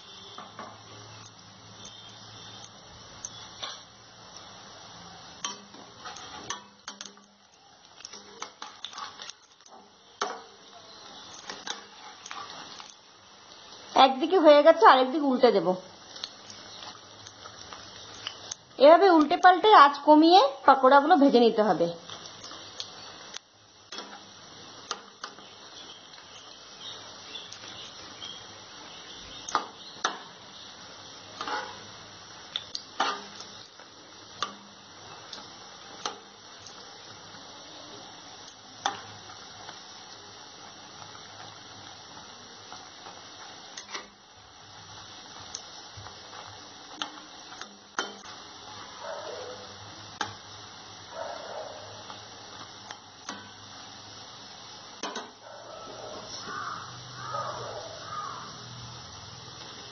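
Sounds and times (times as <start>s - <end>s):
food sizzling in hot oil: 0.0s - 59.9s
metal spatula scraping a pan: 3.3s - 3.9s, 5.4s - 7.2s, 8.1s - 10.4s, 11.1s - 13.0s, 31.3s - 32.0s, 33.0s - 33.6s.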